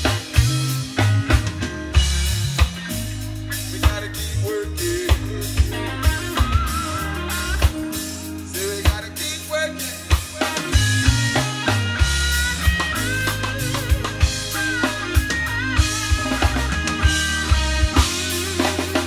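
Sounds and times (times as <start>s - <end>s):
heavy bass line: 0.0s - 19.0s
live reggae band playing: 0.0s - 19.0s
wavering melody line: 10.7s - 19.0s.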